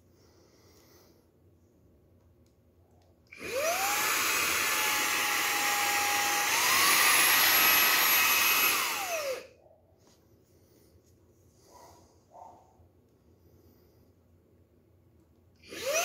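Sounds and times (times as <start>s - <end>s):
handheld vacuum motor whining: 3.3s - 9.5s, 15.6s - 16.0s.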